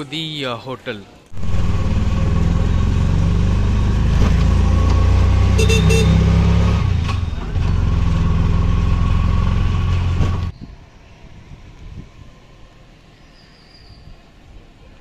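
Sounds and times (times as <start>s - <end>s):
auto-rickshaw engine running: 1.3s - 10.5s
short high beep: 5.6s - 6.2s.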